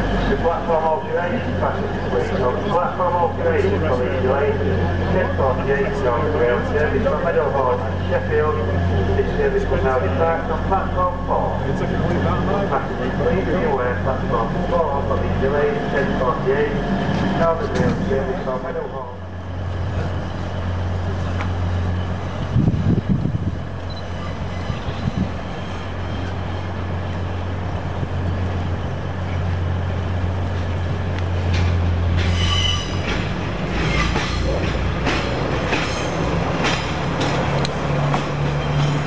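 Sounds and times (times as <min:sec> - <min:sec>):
diesel train engine drone: 0:00.0 - 0:39.0
train wheel squeal: 0:23.9 - 0:26.8, 0:32.2 - 0:34.7
wheels clicking on track: 0:30.5 - 0:39.0.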